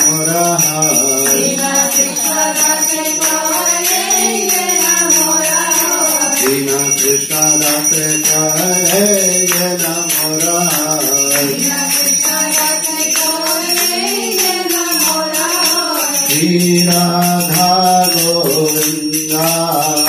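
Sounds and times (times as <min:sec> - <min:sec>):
hand bell ringing: 0:00.0 - 0:20.0
women singing in unison: 0:01.3 - 0:06.6, 0:11.5 - 0:16.3.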